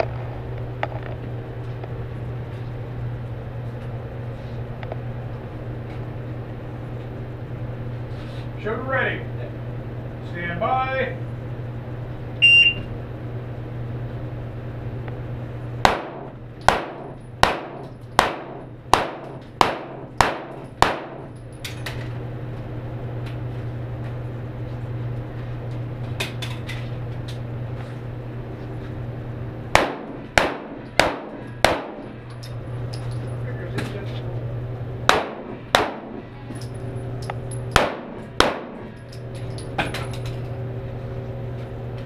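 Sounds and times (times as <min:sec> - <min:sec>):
handgun shots echoing indoors: 0:15.8 - 0:21.8, 0:29.7 - 0:32.1, 0:35.1 - 0:36.2, 0:37.7 - 0:38.9.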